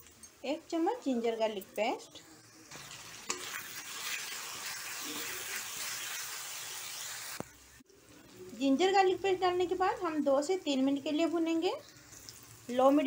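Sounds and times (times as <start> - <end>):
onions sizzling in hot oil: 0.7 - 13.0.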